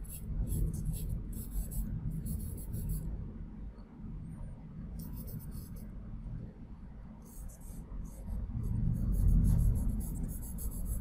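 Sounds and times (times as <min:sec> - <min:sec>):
charcoal pencil scratching on paper: 0:00.0 - 0:03.0, 0:07.3 - 0:11.0
low rumble: 0:07.7 - 0:11.0.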